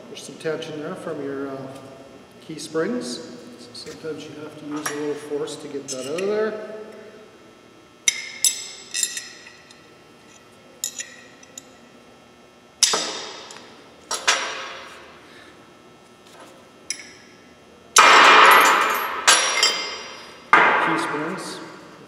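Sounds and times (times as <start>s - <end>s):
steel parts clinking: 8.1s - 11.7s, 18.3s - 20.4s.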